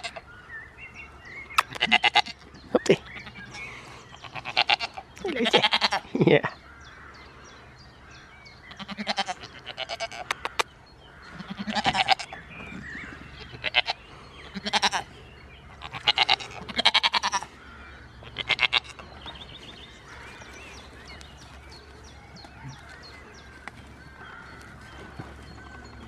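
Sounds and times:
goats bleating: 1.7 - 2.4, 4.2 - 6.2, 8.7 - 10.6, 11.3 - 12.4, 13.4 - 15.1, 15.8 - 17.6, 18.2 - 19.0.

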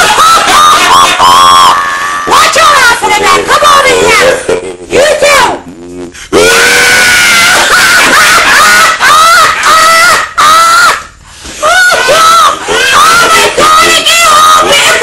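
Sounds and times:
person screaming: 6.4 - 7.6.

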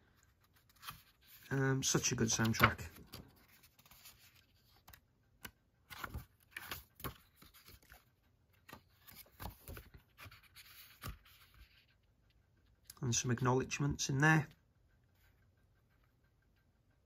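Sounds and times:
paper pages rustling: 0.0 - 12.1.

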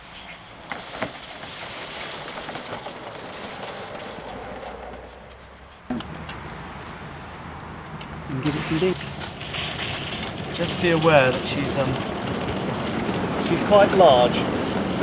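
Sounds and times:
steam locomotive hissing: 8.4 - 15.0.

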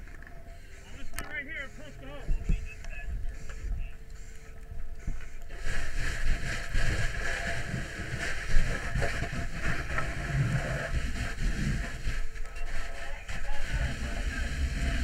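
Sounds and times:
fire hose water rushing: 5.5 - 12.2, 12.8 - 15.0.

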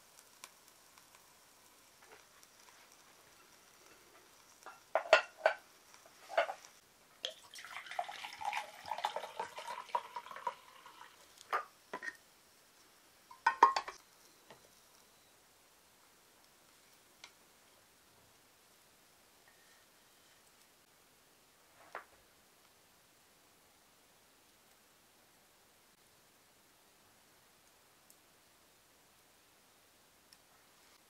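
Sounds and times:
tableware clinking: 4.7 - 5.6, 6.3 - 6.6, 13.3 - 14.0
liquid pouring into metal cup: 7.2 - 11.2.

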